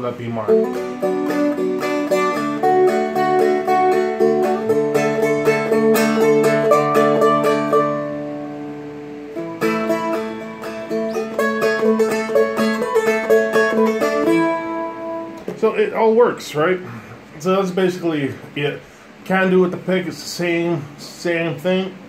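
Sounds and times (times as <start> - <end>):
plucked dulcimer melody: 0.5 - 8.6, 9.4 - 15.4.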